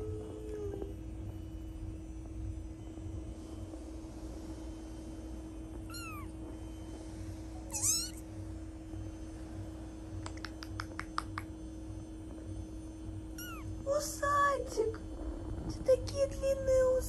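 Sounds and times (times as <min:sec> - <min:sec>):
kitten mewing: 0:05.9 - 0:06.3, 0:07.7 - 0:08.2, 0:13.4 - 0:13.7.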